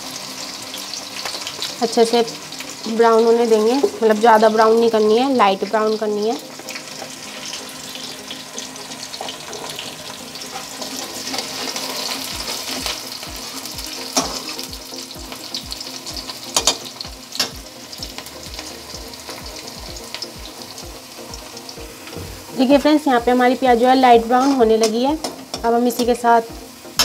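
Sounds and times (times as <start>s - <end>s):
onions sizzling in hot oil: 0.0s - 27.0s
spatula scraping a pan: 9.1s - 14.7s, 24.2s - 25.6s.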